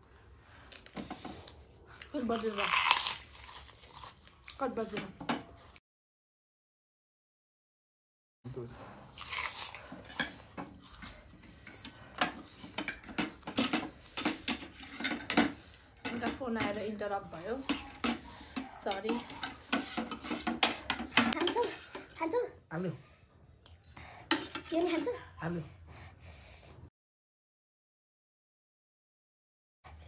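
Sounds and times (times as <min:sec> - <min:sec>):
utensils clinking against dishes: 0:11.6 - 0:22.2, 0:24.2 - 0:25.0.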